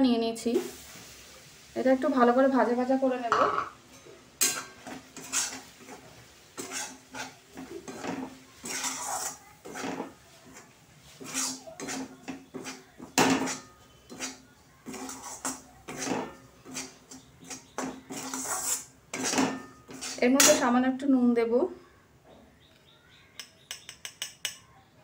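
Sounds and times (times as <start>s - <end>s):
metal spatula scraping a pan: 3.2s - 20.8s.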